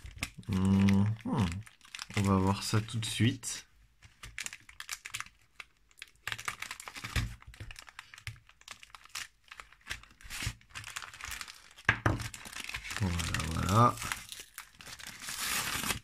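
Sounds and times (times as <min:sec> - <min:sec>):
plastic wrapping crinkling: 0:00.0 - 0:16.0.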